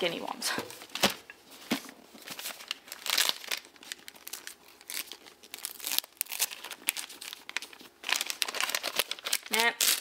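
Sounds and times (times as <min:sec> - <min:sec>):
wrapping paper crinkling and tearing: 0:02.2 - 0:10.0.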